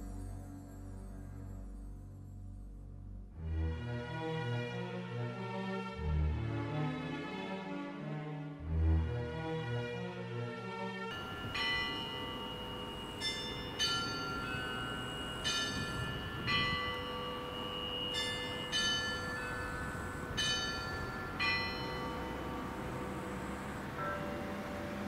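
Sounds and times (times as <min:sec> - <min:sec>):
church bells ringing: 0:11.1 - 0:25.0.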